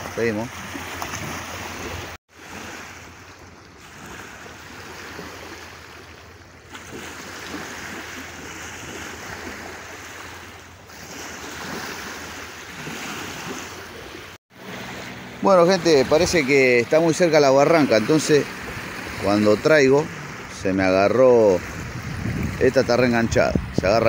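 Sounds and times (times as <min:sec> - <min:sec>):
river waves lapping on bank: 0:00.0 - 0:24.0
wind buffeting microphone: 0:17.7 - 0:24.0.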